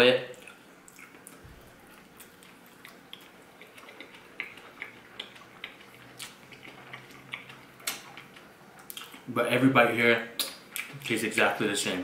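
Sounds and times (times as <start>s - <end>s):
person chewing food: 0.3s - 9.3s
mouth smacks: 2.2s - 9.3s.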